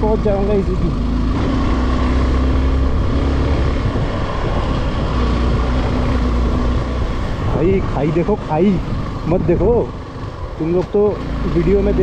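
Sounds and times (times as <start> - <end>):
motorcycle engine running: 0.0 - 12.0
steady rushing noise: 0.6 - 12.0.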